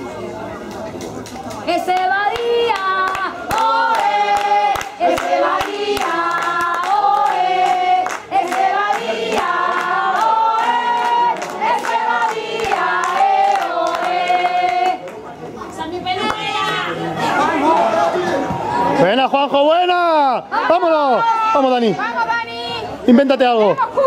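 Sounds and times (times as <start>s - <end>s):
hand claps: 0.7s - 15.2s
crowd singing a chant: 1.7s - 15.2s.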